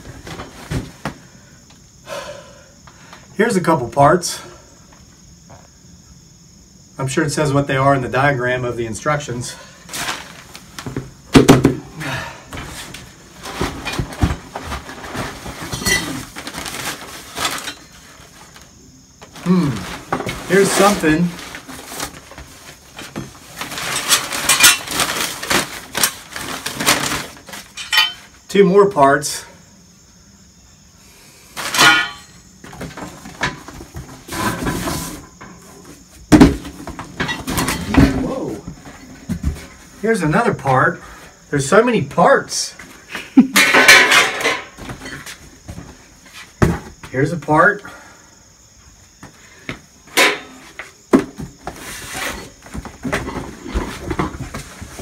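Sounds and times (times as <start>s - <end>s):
paper packing rustling: 9.9s - 11.0s, 12.7s - 28.3s
steel parts clanking: 27.7s - 28.3s, 31.7s - 32.4s.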